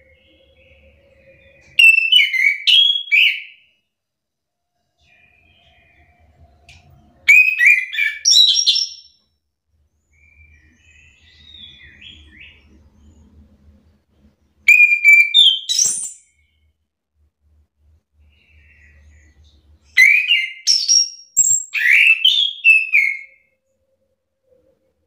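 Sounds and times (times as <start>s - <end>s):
thrush singing whistled notes: 0.0s - 3.7s, 5.0s - 9.2s, 14.7s - 16.6s, 18.4s - 23.5s.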